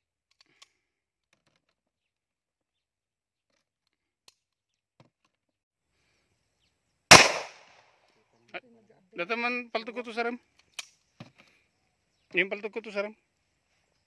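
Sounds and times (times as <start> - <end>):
pistol shot: 7.1 - 7.8.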